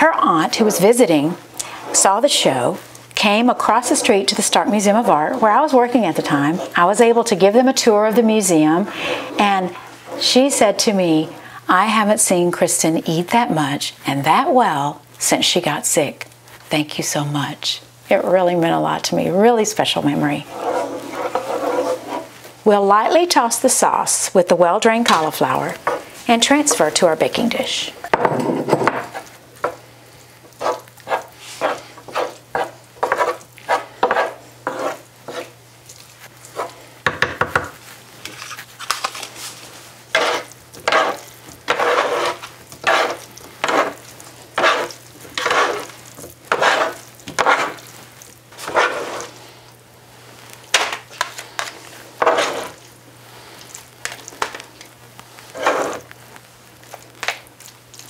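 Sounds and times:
low steady hum: 0:00.0 - 0:58.0
spatula scraping a skillet: 0:00.3 - 0:02.6, 0:03.2 - 0:07.3, 0:20.4 - 0:22.4, 0:25.1 - 0:27.6, 0:30.5 - 0:35.6, 0:36.2 - 0:36.8, 0:38.2 - 0:49.4, 0:50.7 - 0:52.8, 0:55.4 - 0:56.1.

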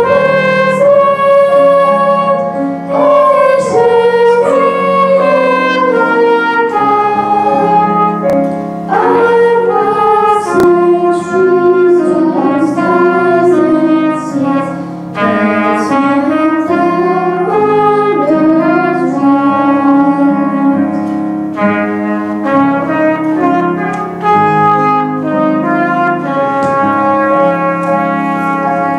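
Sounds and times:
children singing a hymn: 0:00.0 - 0:28.9
grand piano: 0:00.0 - 0:28.9
trumpet playing melody: 0:00.0 - 0:28.9.

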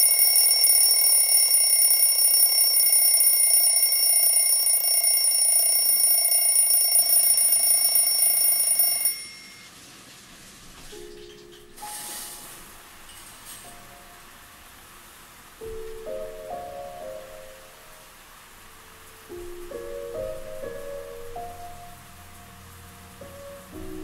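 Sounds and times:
high-pitched alarm tone: 0:00.0 - 0:09.7.

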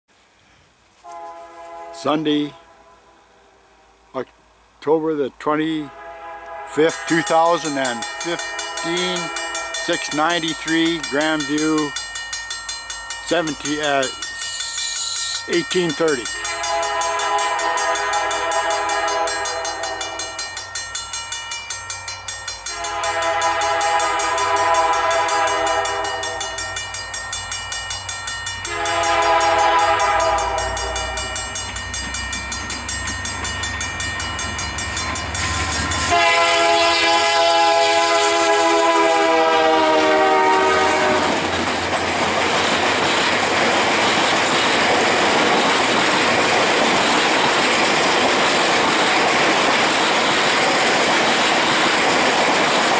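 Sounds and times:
train air horn blasts: 0:01.0 - 0:04.1, 0:05.8 - 0:10.1, 0:16.4 - 0:20.3, 0:22.7 - 0:26.6, 0:28.7 - 0:31.3, 0:36.0 - 0:41.4
train cars rolling clickety-clack: 0:06.8 - 0:52.9.

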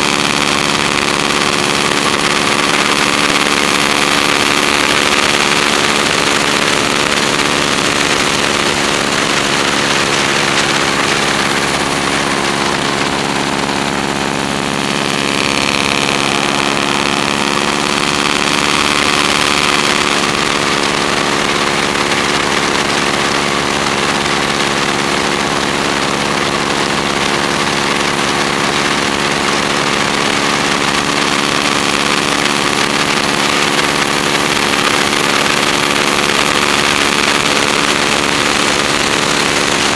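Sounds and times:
radial aircraft engine running: 0:00.0 - 0:39.9.

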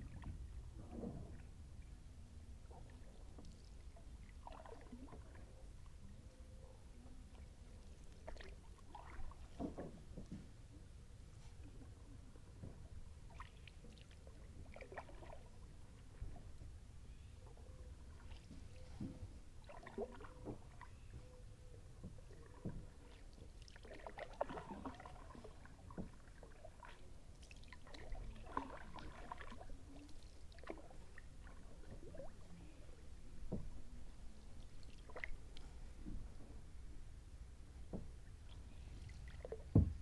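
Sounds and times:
faint low rumble: 0:00.0 - 0:40.0
paddle splashing in water: 0:02.7 - 0:05.5, 0:07.4 - 0:10.6, 0:12.7 - 0:16.4, 0:18.1 - 0:21.3, 0:22.0 - 0:36.4, 0:37.8 - 0:40.0.

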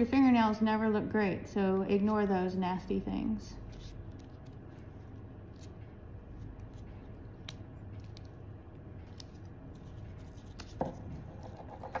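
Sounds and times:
tape rustling and handling: 0:03.6 - 0:12.0.

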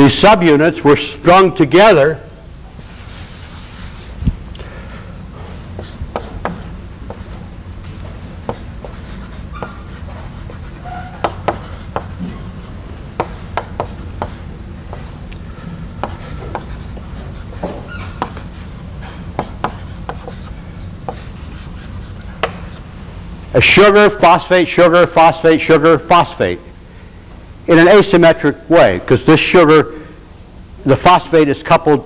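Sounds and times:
low room hum: 0:00.0 - 0:32.0
writing on a board: 0:05.8 - 0:15.2, 0:16.0 - 0:22.8.

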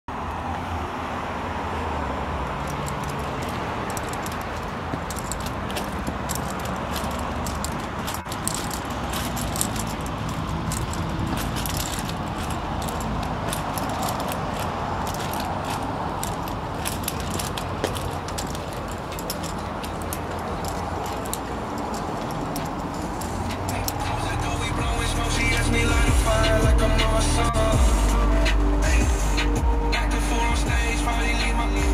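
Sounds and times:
low vehicle rumble: 0:00.1 - 0:31.9
small clicks and scuffs: 0:02.4 - 0:27.1.

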